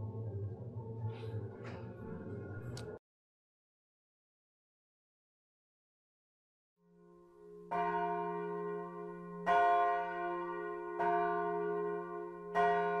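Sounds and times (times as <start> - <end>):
church bells ringing: 7.0 - 13.0.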